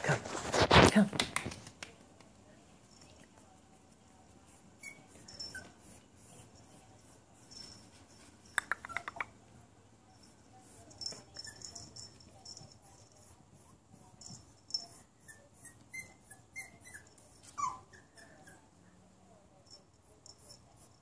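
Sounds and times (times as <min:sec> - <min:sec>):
puppy whimpering: 0:15.3 - 0:18.6.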